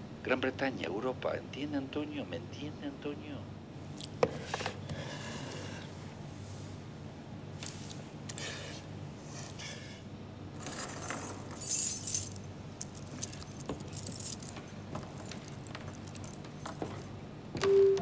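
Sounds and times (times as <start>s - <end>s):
metal keys jangling: 10.6s - 17.2s.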